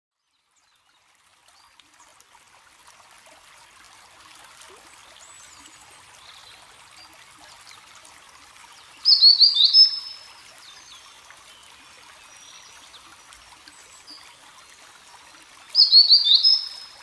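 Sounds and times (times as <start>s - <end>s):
faint trickling water: 0.1s - 17.0s
distant bird chirps: 9.1s - 10.1s, 15.8s - 17.0s.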